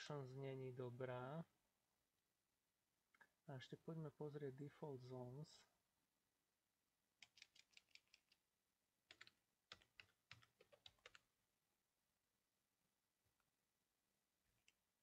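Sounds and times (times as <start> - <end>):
typing on computer keyboard: 7.2 - 8.4, 9.1 - 11.3.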